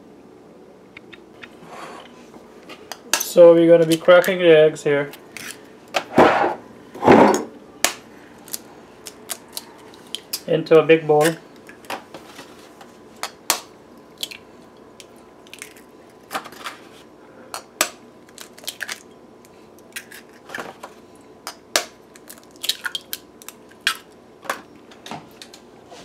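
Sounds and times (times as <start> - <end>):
eggshells cracking: 13.2 - 14.4, 15.0 - 16.4, 17.8 - 19.2, 21.5 - 24.2.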